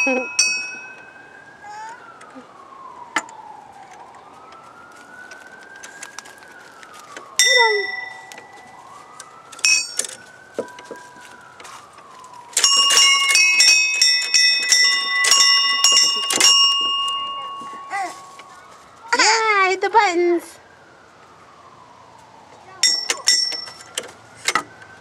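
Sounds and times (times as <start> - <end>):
metal chime tubes ringing: 0.0 - 1.8, 7.4 - 8.6, 9.5 - 10.8, 12.6 - 18.6, 22.8 - 24.0
faint distant siren wailing: 0.0 - 25.0.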